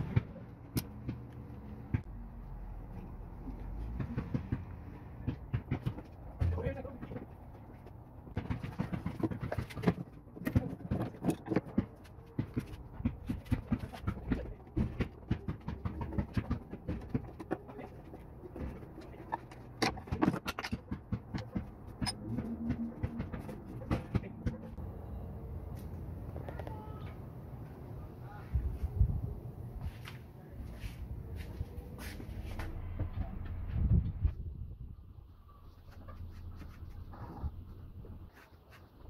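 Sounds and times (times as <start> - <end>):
screwdriver and hands working on wiring: 2.9 - 24.8.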